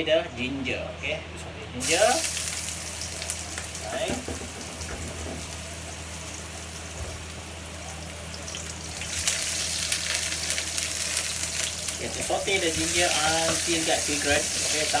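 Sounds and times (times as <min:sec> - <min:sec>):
ginger sizzling in hot oil: 0:01.8 - 0:15.0
wooden spatula scraping wok: 0:12.0 - 0:15.0.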